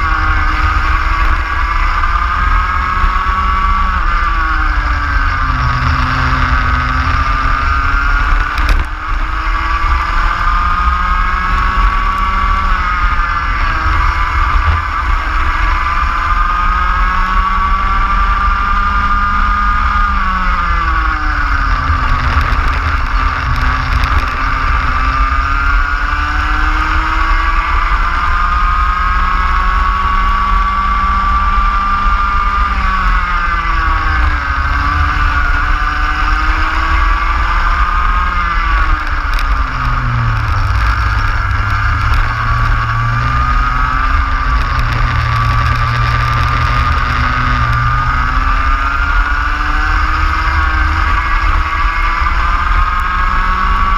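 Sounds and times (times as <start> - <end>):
low rumble of wind and track: 0.0 - 53.9
racing kart engine: 0.0 - 53.9.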